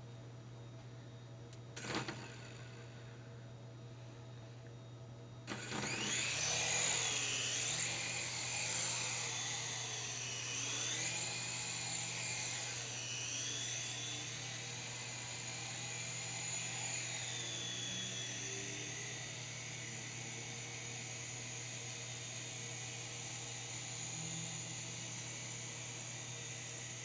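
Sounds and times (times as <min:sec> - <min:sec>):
toy helicopter rotor whine: 0:01.8 - 0:02.8, 0:05.5 - 0:27.0.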